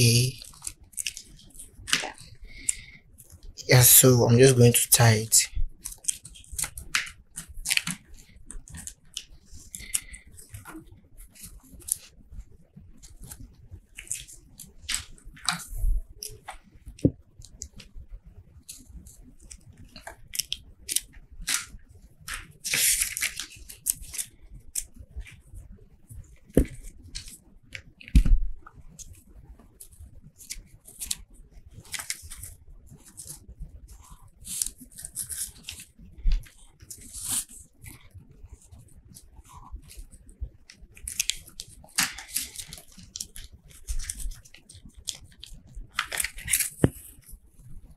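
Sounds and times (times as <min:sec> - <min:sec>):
paper rustling: 0:20.0 - 0:21.7, 0:22.3 - 0:24.3, 0:31.8 - 0:38.7, 0:41.0 - 0:47.3
thread rasping through paper: 0:31.8 - 0:47.3.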